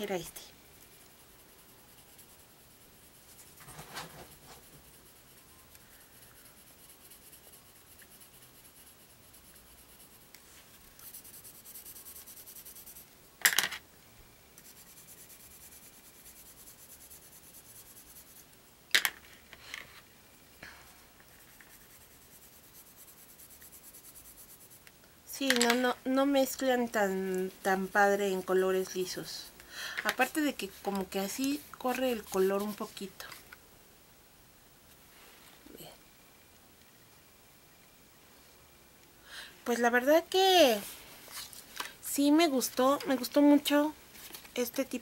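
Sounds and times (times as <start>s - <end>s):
coloured pencil scratching on card: 0.2s - 13.1s, 14.6s - 18.5s, 21.2s - 24.9s, 30.2s - 33.1s.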